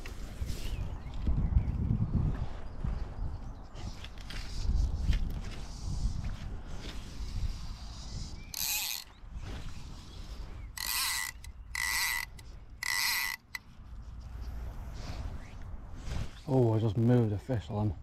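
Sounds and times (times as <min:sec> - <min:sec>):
fly reel ratchet buzzing: 0:08.5 - 0:09.1, 0:10.8 - 0:13.6.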